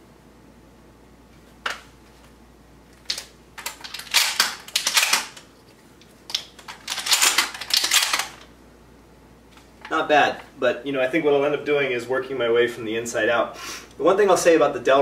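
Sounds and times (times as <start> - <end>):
shotgun shells clicking into magazine: 3.1 - 5.5, 6.3 - 8.4.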